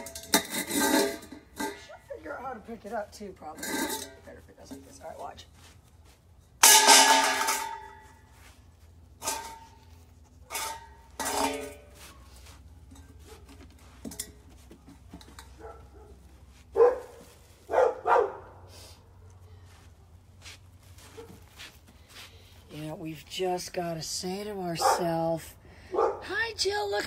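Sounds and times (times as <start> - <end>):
dog barking: 15.6 - 18.6, 24.8 - 25.1, 25.9 - 26.3.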